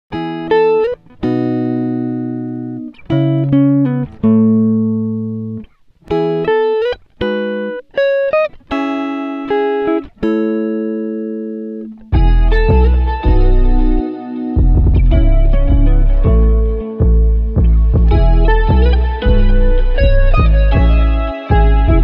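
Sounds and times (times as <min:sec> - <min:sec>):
plucked string music: 0:00.1 - 0:22.0
deep bass: 0:12.2 - 0:14.0, 0:14.6 - 0:22.0.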